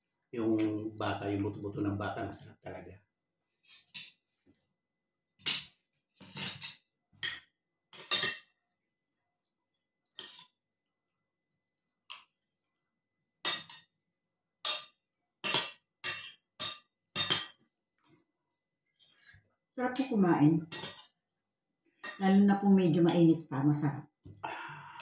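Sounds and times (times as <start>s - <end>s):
cutlery clinks: 5.4s - 7.4s, 8.0s - 8.5s, 14.7s - 17.6s, 20.7s - 21.1s.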